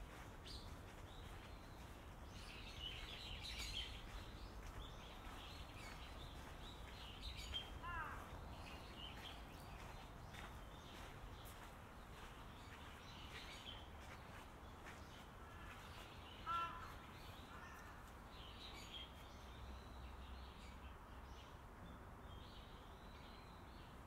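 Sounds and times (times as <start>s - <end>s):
small birds chirping: 0.0s - 21.6s
crow cawing: 7.8s - 8.3s, 16.4s - 18.0s.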